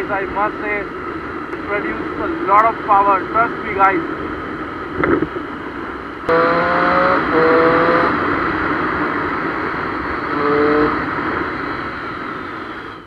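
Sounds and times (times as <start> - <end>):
wind on camera: 0.8 - 13.0
motorcycle engine at speed: 4.1 - 13.0.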